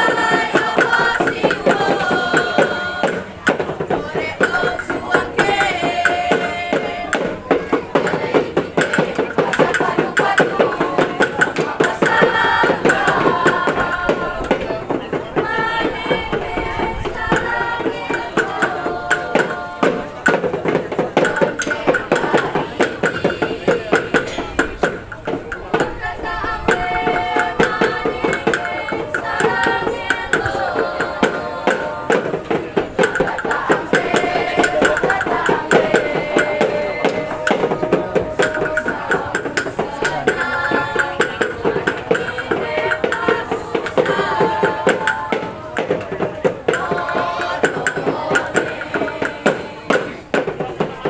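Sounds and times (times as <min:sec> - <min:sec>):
group singing: 0:00.0 - 0:51.0
steady drum beat: 0:00.0 - 0:51.0.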